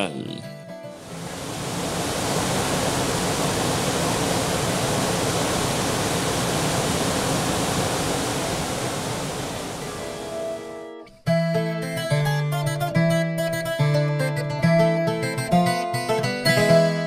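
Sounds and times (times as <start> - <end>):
waterfall rushing onto rocks: 1.0 - 10.6
guitar music: 9.8 - 17.0.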